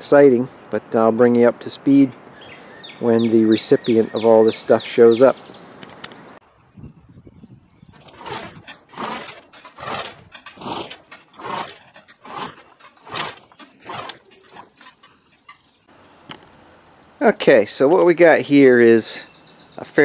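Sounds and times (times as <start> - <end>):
steel roll-up door rattling: 8.0 - 15.8.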